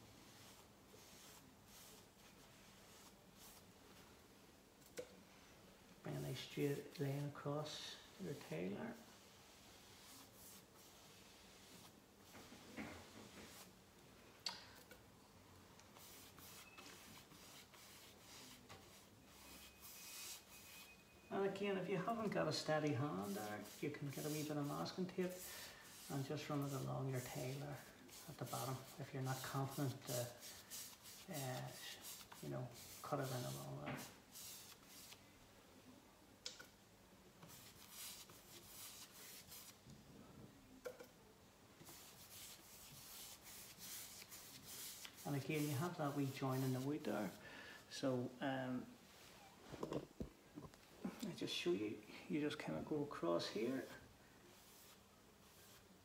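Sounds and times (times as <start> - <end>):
paintbrush swishes: 0.0 - 3.7, 6.4 - 13.8, 15.9 - 21.0, 21.9 - 35.2, 37.5 - 39.8, 41.8 - 47.4, 53.6 - 55.9.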